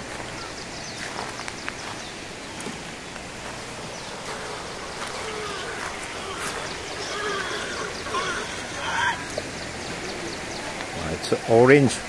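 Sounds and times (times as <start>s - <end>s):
river rushing: 0.0s - 12.0s
faint voices: 3.3s - 12.0s.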